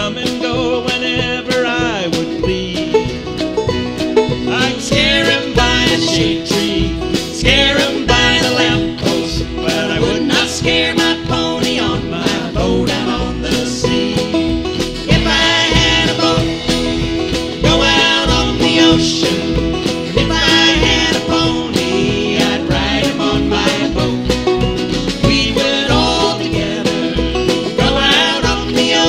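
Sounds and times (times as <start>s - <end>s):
acoustic guitars picking: 0.0s - 29.0s
low bass notes: 0.0s - 29.0s
mandolin picking: 0.0s - 29.0s.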